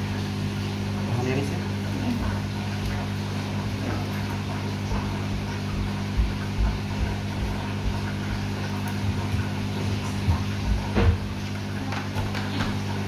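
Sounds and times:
low machine hum: 0:00.0 - 0:13.0
soft low thumps: 0:04.9 - 0:08.1, 0:10.2 - 0:11.3.

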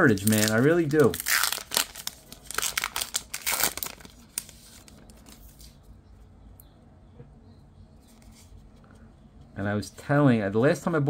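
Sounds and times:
cards rustling: 0:00.0 - 0:05.8
wrapper crinkling: 0:00.0 - 0:05.8.

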